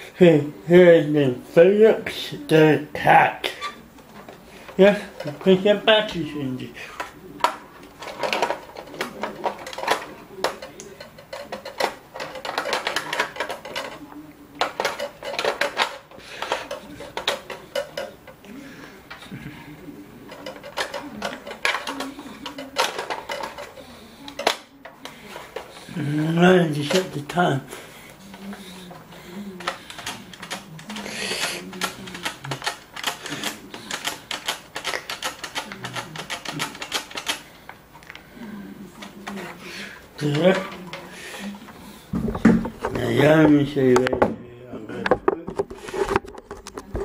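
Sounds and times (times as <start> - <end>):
plastic and batteries clicking: 7.0 - 19.3, 20.3 - 25.8, 28.1 - 38.3.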